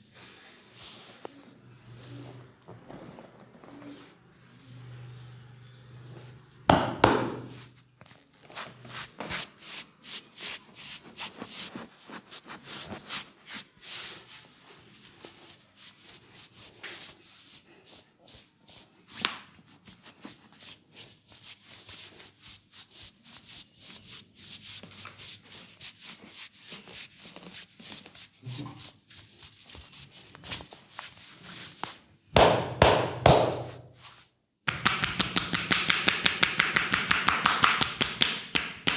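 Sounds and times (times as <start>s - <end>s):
hands rubbing on fabric: 7.4s - 32.1s, 33.5s - 34.3s.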